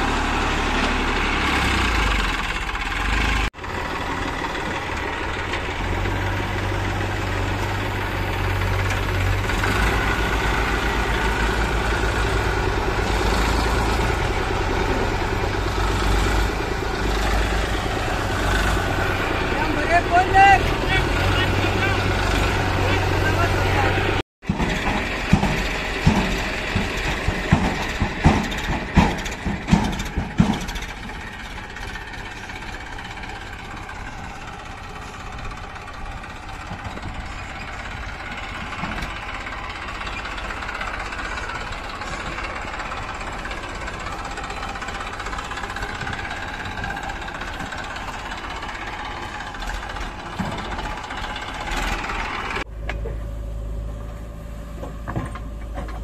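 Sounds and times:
diesel tractor engine drone: 0.0 - 56.0
loud clanks and knocks: 24.4 - 53.2, 54.7 - 56.0.

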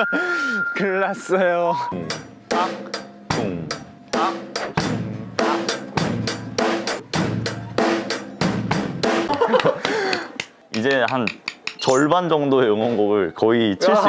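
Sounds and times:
bass drum kicks: 3.3 - 3.9, 4.8 - 5.4, 6.0 - 7.6.

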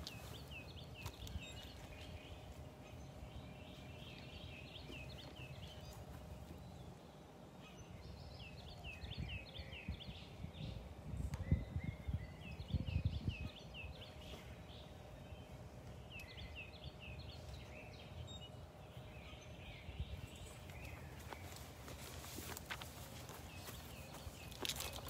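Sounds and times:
outdoor background noise: 0.0 - 25.0
songbird singing: 0.0 - 25.0.

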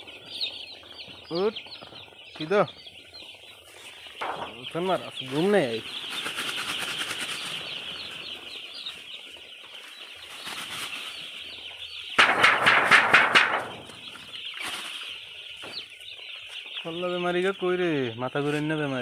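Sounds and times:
chicks peeping: 0.0 - 19.0
wings flapping: 4.2 - 8.5, 10.2 - 11.5, 12.1 - 15.2.

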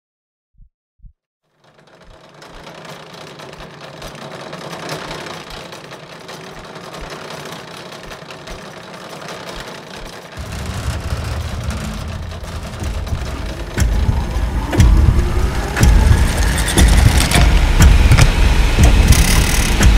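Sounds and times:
mechanical whirring: 1.6 - 19.9
soft low thumps: 10.4 - 19.2
heavy low rumble: 10.4 - 19.9.

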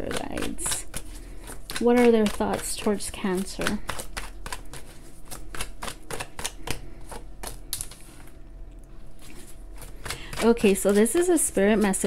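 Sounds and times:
cards being shuffled: 0.1 - 8.4.

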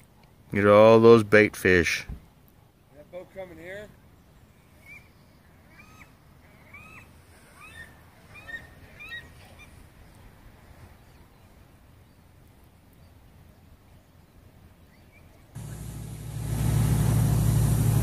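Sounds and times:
low background rumble: 15.6 - 18.0.

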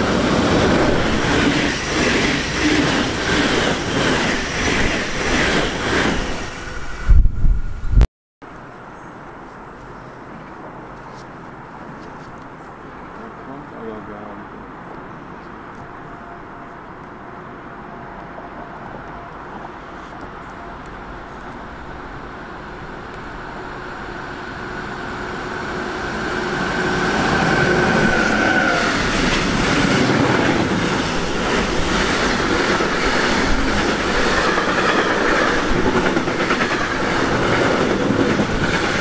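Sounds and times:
train wheels clacking on rails: 0.0 - 6.4, 26.1 - 39.0
electric locomotive whine: 0.0 - 7.8, 15.8 - 39.0.

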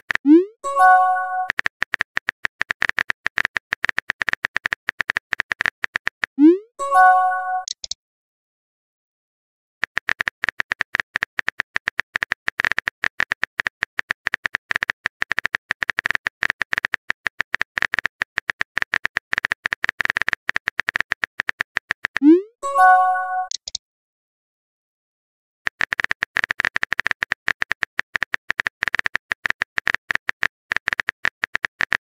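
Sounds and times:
phone keyboard clicks: 7.6 - 8.0, 9.8 - 22.2, 23.5 - 23.8, 25.7 - 32.0.

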